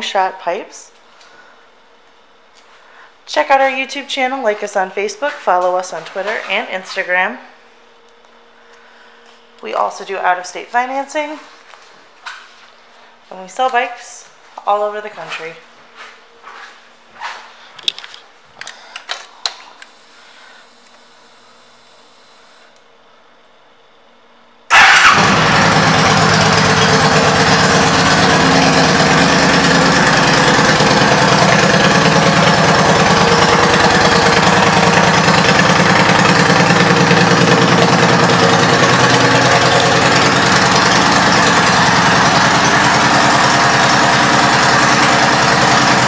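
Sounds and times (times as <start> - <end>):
motorcycle engine starting and idling: 24.7 - 46.0.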